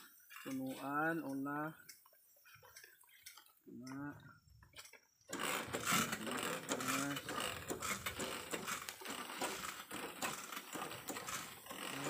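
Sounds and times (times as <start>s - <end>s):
hand saw cutting a branch: 5.3s - 12.0s.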